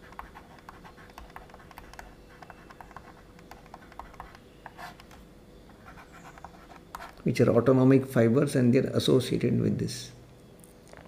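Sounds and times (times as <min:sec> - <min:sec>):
stylus tapping on tablet screen: 0:00.0 - 0:05.2.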